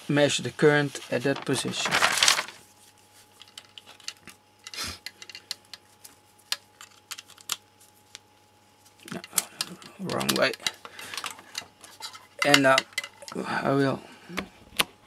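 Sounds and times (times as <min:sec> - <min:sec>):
faint electrical hum: 0:00.0 - 0:15.0
plastic clicks and handling rattles: 0:09.1 - 0:11.7.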